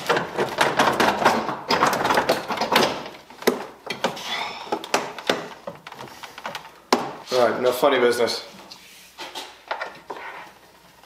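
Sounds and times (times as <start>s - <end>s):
plastic scraping and clattering: 0.0s - 7.2s.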